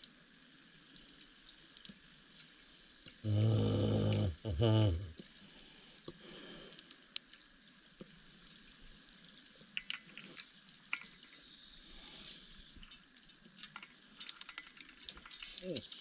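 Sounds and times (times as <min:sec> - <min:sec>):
underwater clicks and crackles: 0:00.0 - 0:16.0
faint low rumble: 0:03.1 - 0:05.2.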